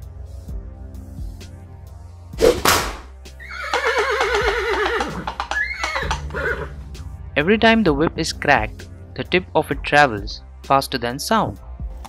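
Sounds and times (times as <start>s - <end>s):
background music: 0.0s - 12.0s
whip crack: 2.4s - 3.2s
horse whinnying: 3.4s - 6.8s.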